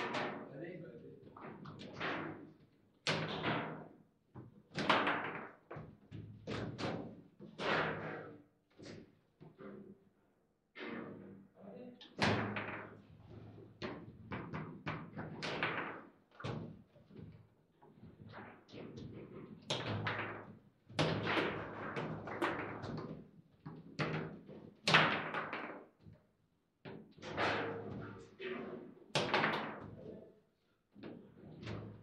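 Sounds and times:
foosball ball knocks and bangs: 0:00.0 - 0:00.5, 0:01.4 - 0:09.0, 0:12.1 - 0:13.1, 0:13.8 - 0:16.8, 0:18.3 - 0:26.0, 0:26.9 - 0:28.2, 0:29.2 - 0:30.1.

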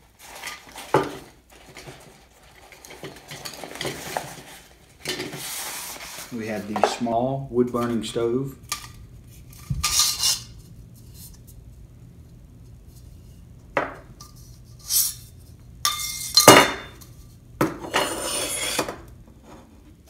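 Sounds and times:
metal scraping on metal: 0:09.8 - 0:11.3, 0:17.8 - 0:19.7
metal stove parts clinking and knocking: 0:15.8 - 0:18.1.

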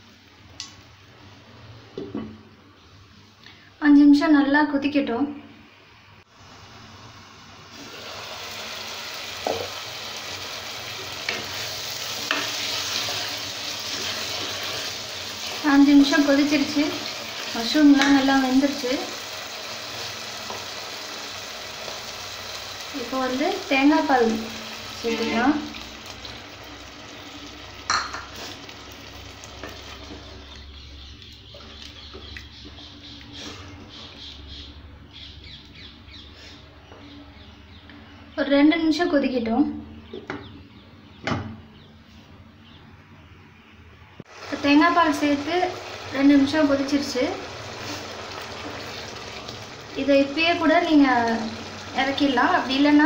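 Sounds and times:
curry sizzling in a pan: 0:06.3 - 0:30.6, 0:44.3 - 0:53.0.

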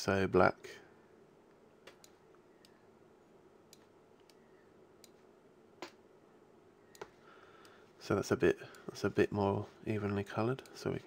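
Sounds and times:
computer mouse clicks: 0:03.7 - 0:04.4, 0:05.0 - 0:06.0, 0:06.9 - 0:07.8.

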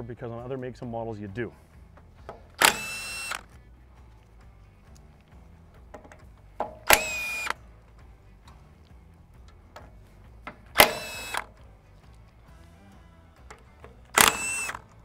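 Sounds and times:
cordless impact wrench bursts: 0:02.6 - 0:03.5, 0:06.8 - 0:07.6, 0:10.7 - 0:11.5, 0:14.1 - 0:14.9.

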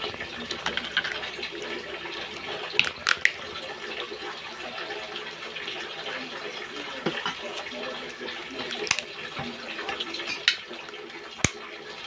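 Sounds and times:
eating sounds: 0:00.0 - 0:12.0
crab shell cracking: 0:02.8 - 0:03.4, 0:11.4 - 0:11.6.

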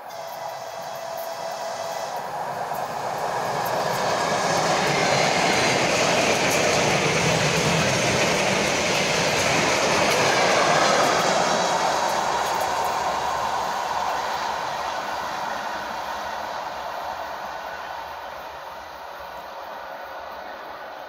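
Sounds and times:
electric train passing: 0:00.0 - 0:21.0.

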